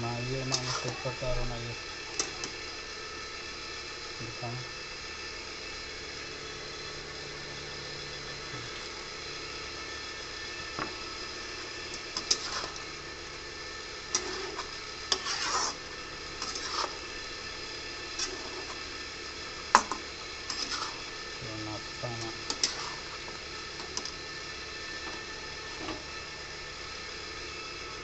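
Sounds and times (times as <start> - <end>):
steady background hum: 0.0 - 28.0
metal spatula scraping steel wok: 0.4 - 1.5, 12.0 - 12.9, 14.1 - 17.1, 18.1 - 18.8, 19.8 - 21.1, 22.4 - 24.2.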